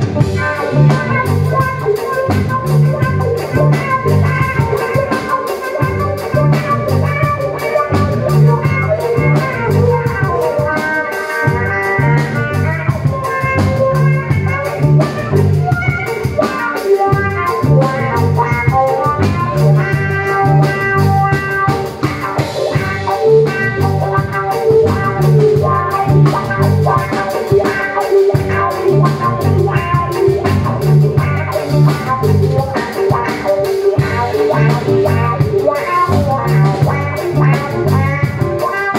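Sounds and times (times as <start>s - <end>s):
drum beat: 0.0s - 38.9s.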